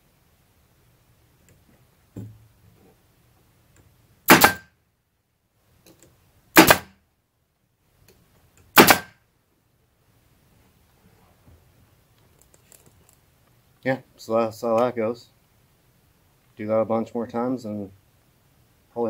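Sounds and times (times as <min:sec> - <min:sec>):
pneumatic staple gun firing: 0:04.3 - 0:04.7, 0:06.6 - 0:06.9, 0:08.8 - 0:09.2.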